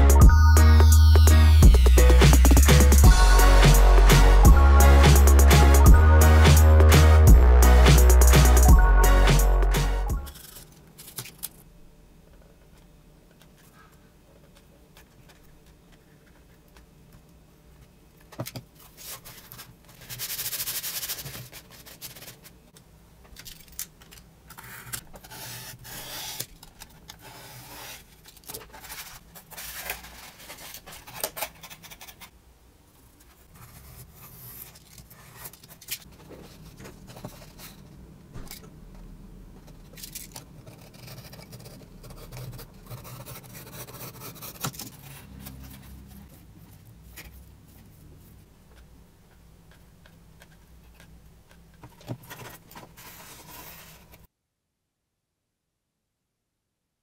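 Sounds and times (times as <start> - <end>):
cardboard rubbing and scraping: 52.1 - 54.2.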